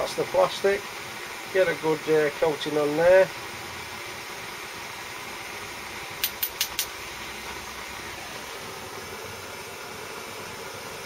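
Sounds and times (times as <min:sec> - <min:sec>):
blowtorch flame hissing: 0:00.0 - 0:11.0
sharp clicks: 0:06.2 - 0:06.9.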